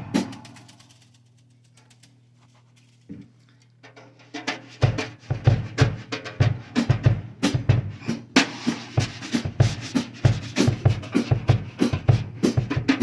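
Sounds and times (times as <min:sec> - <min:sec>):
drum kit beat: 0:00.0 - 0:01.0, 0:03.8 - 0:13.0
faint clicks: 0:00.4 - 0:03.8.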